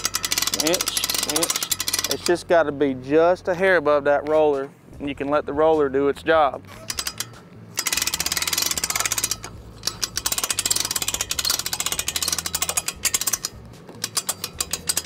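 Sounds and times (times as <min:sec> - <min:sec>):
winch ratcheting: 0:00.0 - 0:02.7, 0:06.7 - 0:15.0.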